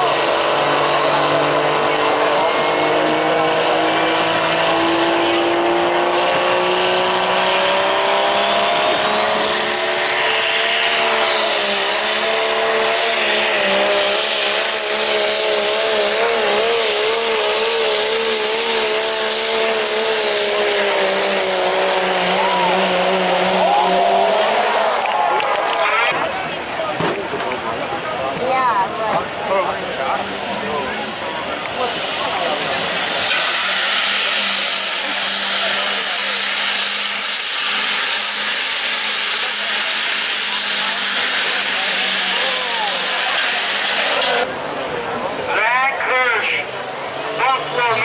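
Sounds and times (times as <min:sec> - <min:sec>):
diesel truck engine straining: 0:00.0 - 0:48.0
high whistle: 0:26.2 - 0:30.3.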